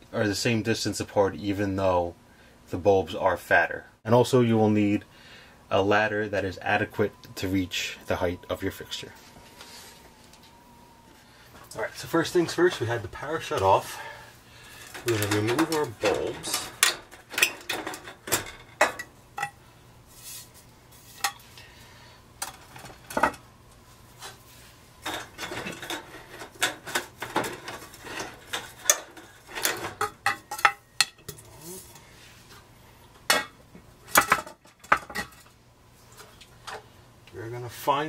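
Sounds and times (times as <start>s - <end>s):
glass tubes and metal fixture clinking: 14.8s - 19.6s.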